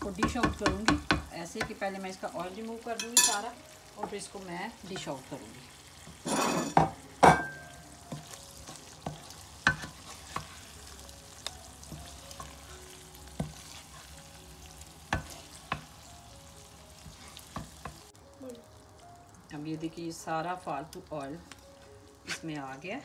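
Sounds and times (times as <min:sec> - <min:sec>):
hot oil sizzling: 0:00.0 - 0:23.0
wooden spoon scraping a pan: 0:04.8 - 0:06.8, 0:08.1 - 0:10.8, 0:11.9 - 0:14.3, 0:15.1 - 0:16.0, 0:17.0 - 0:18.0.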